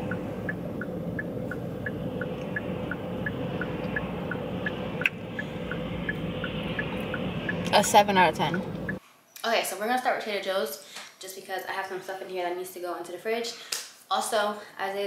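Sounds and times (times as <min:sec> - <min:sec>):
low cabin hum: 0:00.0 - 0:09.0
turn signal ticking: 0:00.0 - 0:09.0.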